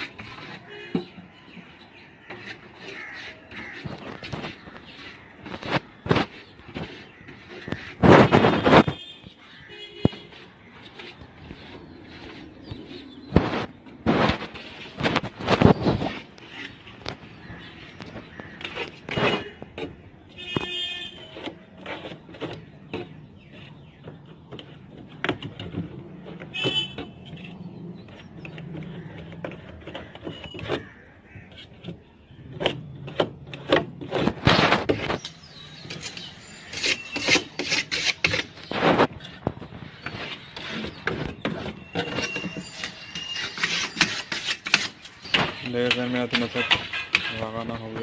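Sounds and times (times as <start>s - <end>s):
scratchy rubbing strokes: 0.0s - 0.9s, 1.5s - 48.0s
short squeaks: 32.6s - 45.8s.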